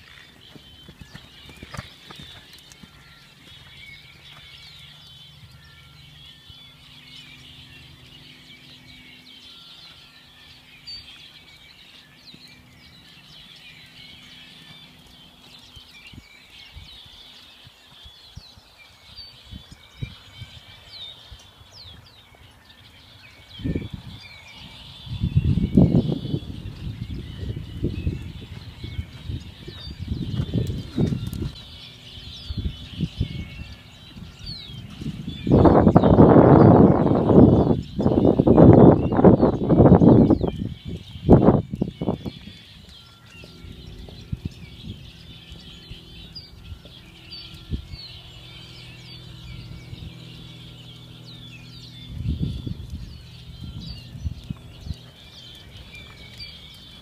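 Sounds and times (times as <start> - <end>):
horse hooves on sand: 0.0 - 5.6, 26.4 - 57.0
small birds chirping: 0.0 - 57.0.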